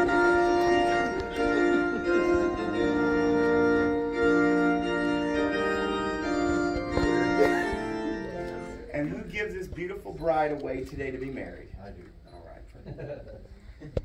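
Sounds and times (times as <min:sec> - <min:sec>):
organ playing slow chords: 0:00.0 - 0:09.3.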